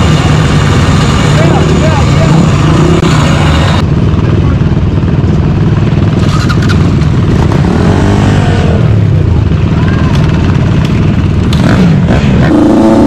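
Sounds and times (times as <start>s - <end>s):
engine revving: 0.0s - 3.8s, 6.0s - 9.5s, 10.8s - 13.0s
dirt bike engines din: 0.0s - 13.0s.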